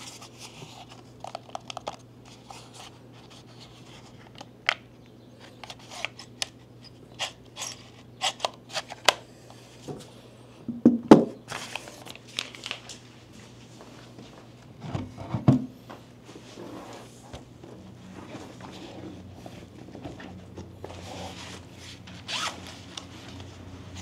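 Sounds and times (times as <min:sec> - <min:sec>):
packaging crinkling and tearing: 0:11.5 - 0:13.0.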